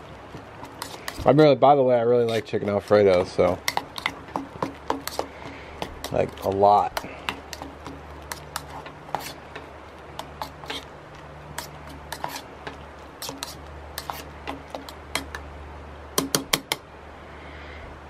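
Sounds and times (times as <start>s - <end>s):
steady low hum: 0.0s - 18.0s
metal spoon scraping in pot: 0.6s - 1.3s, 2.2s - 10.9s, 11.6s - 15.4s
sharp taps: 2.3s - 10.8s.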